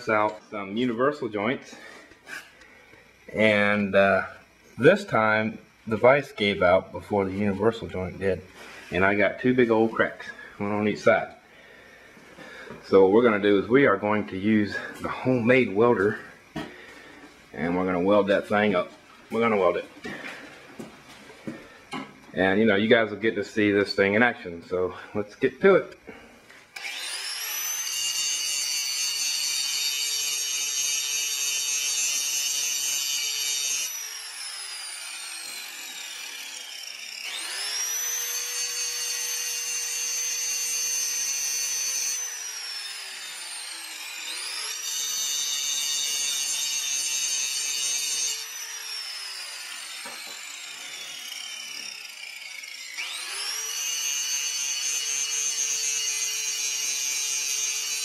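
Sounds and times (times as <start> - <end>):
angle grinder whine: 0.0 - 58.0.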